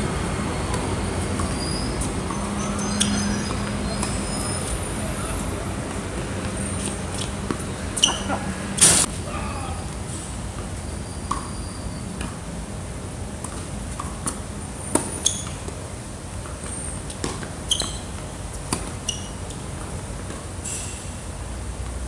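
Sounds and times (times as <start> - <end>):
tennis ball bouncing on hard court: 0.7 - 8.3, 13.4 - 15.8, 16.4 - 20.4
tennis ball struck by rackets: 13.4 - 15.3, 17.1 - 18.0.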